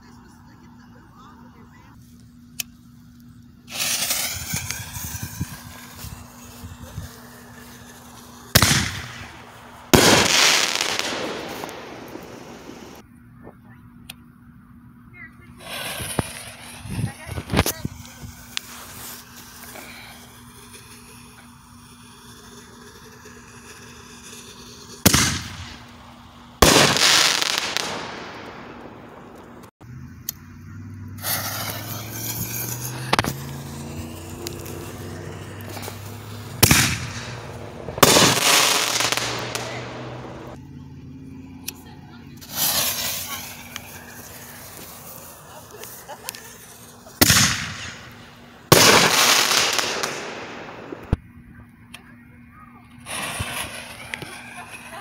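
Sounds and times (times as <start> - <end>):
firework crackle: 0.2 - 13.0, 15.6 - 29.8, 30.4 - 40.6, 41.3 - 51.2, 52.9 - 55.0
firework shell bursting: 3.6 - 13.0, 15.6 - 29.7, 31.2 - 40.6, 42.4 - 51.2
firework launch bang: 3.7 - 6.3, 8.0 - 13.0, 15.6 - 17.9, 23.0 - 25.9, 26.6 - 29.7, 31.2 - 40.6, 47.2 - 51.2, 53.1 - 54.8
firework shell launch bang: 31.2 - 33.6
sharp pop: 33.1 - 33.4.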